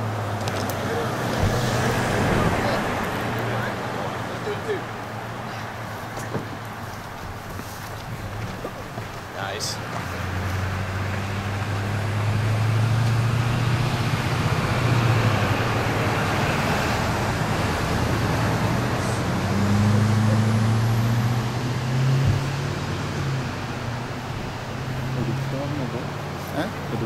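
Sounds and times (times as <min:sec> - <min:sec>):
tyre noise on road: 0:00.0 - 0:27.0
vehicle engines humming: 0:00.0 - 0:27.0.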